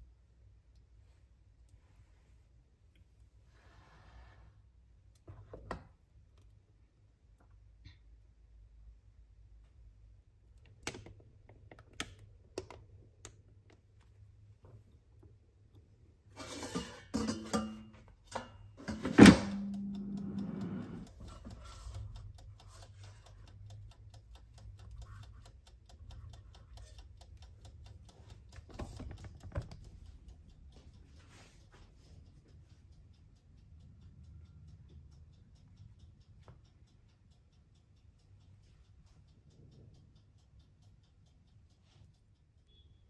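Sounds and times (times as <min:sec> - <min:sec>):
utensils and crockery clattering: 0:16.3 - 0:19.6.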